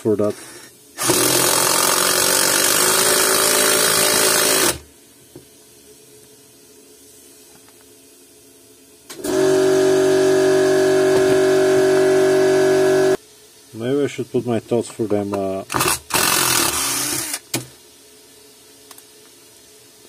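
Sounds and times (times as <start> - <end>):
impact driver whine: 1.0 - 4.8, 9.1 - 13.2, 15.7 - 17.6.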